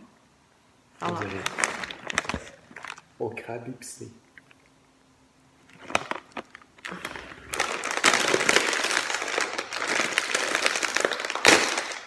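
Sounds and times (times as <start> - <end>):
chip bag plastic crinkling: 1.1 - 3.1, 5.6 - 12.0.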